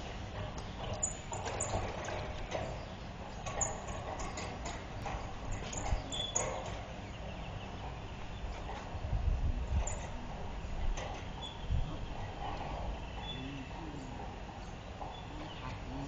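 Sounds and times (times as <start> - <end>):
sliding metal gate rumbling: 0.0 - 16.0
gate clacks and knocks: 0.3 - 9.1, 9.7 - 13.3.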